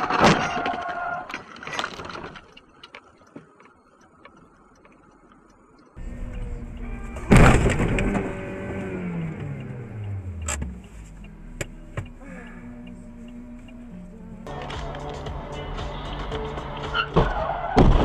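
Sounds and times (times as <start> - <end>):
engine humming: 2.4 - 18.0
engine winding down: 6.0 - 14.5
car collision bang: 7.2 - 8.4, 17.1 - 18.0.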